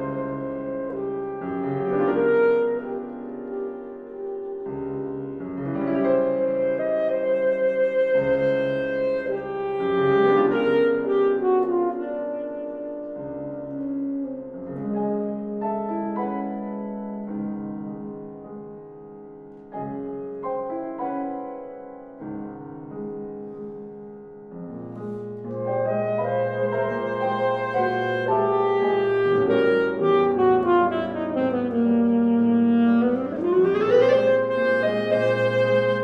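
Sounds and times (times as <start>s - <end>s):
alto saxophone: 0.0s - 16.9s, 24.9s - 36.0s
piano chords: 0.0s - 36.0s.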